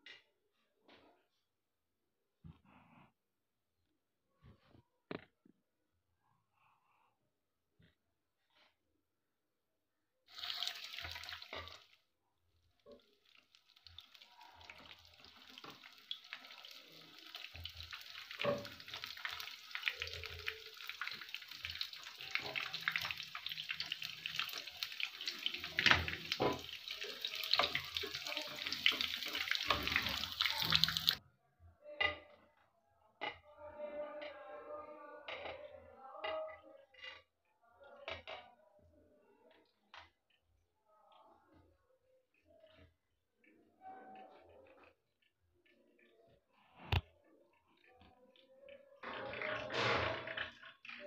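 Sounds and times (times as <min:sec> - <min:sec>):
food deep-frying in oil: 0:10.3 - 0:12.1, 0:12.7 - 0:31.2, 0:49.0 - 0:51.0.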